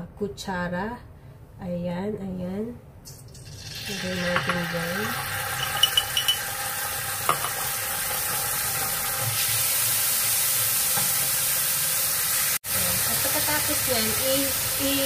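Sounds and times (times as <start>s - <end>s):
sauce sizzling in frying pan: 3.4s - 15.0s
spoon clinks: 5.6s - 6.5s.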